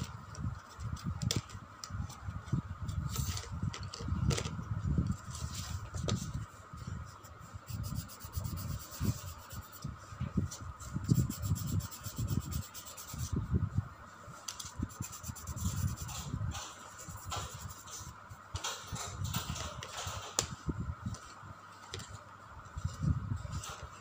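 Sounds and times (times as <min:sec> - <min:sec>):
coloured pencil rubbing on paper: 0:07.7 - 0:09.9, 0:11.0 - 0:13.4, 0:14.9 - 0:16.3, 0:16.9 - 0:18.0.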